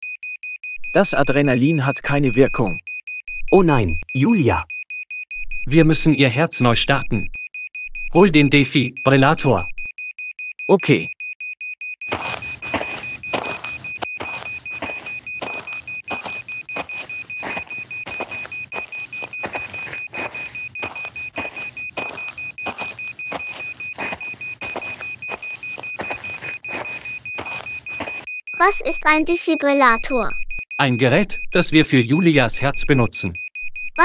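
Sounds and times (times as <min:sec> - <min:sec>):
cartoon footsteps: 0:12.0 - 0:30.2.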